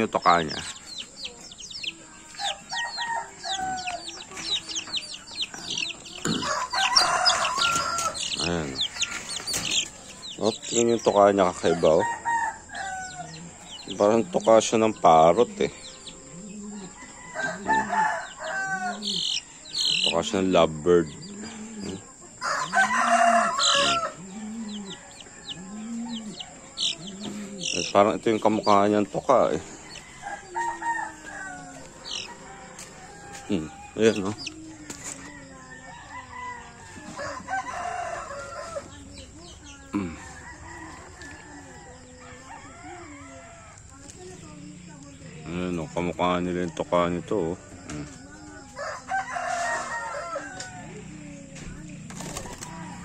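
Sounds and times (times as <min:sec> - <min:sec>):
chicks peeping: 0:00.0 - 0:53.0
rooster crowing: 0:02.1 - 0:13.9, 0:15.8 - 0:20.2, 0:21.0 - 0:28.0, 0:29.4 - 0:39.2, 0:39.9 - 0:44.1, 0:48.6 - 0:53.0.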